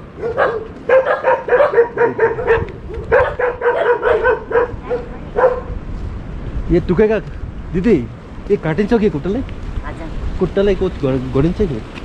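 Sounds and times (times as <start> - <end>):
dog barking: 0.2 - 5.8.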